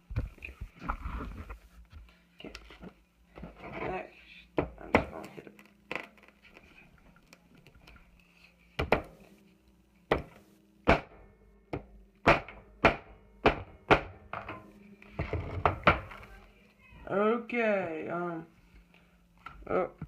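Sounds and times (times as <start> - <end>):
hammer knocking on glass: 10.1 - 14.6.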